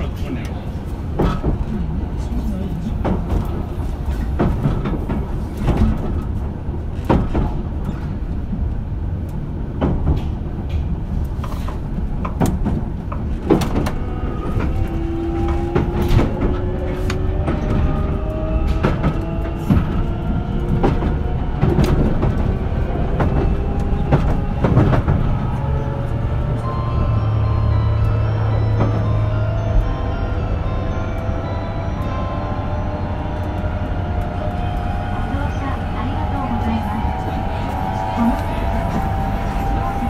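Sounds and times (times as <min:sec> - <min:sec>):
train wheels rumbling on rail: 0:00.0 - 0:40.0
traction motor whine: 0:23.0 - 0:40.0.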